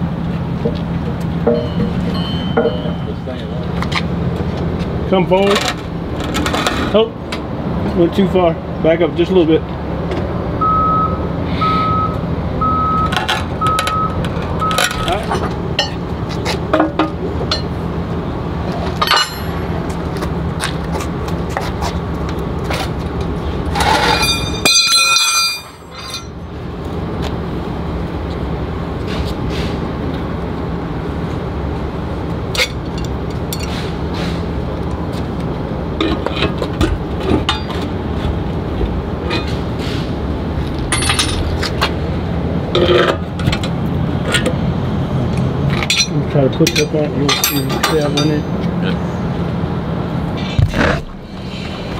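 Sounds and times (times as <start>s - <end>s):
metal tools clinking on steel: 1.4s - 3.5s, 19.0s - 19.6s, 23.8s - 26.4s, 40.9s - 41.8s, 45.8s - 48.6s
ringing metallic clang: 1.4s - 3.5s, 19.0s - 19.6s, 24.0s - 26.4s, 45.9s - 48.5s
low engine hum: 25.4s - 51.9s.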